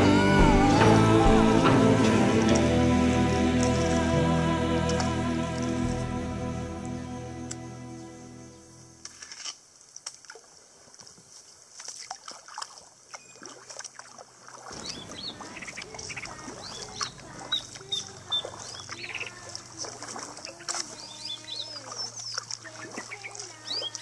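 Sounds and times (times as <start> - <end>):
water dripping and splashing: 9.0 - 24.0
birds whistling and honking: 14.7 - 19.3.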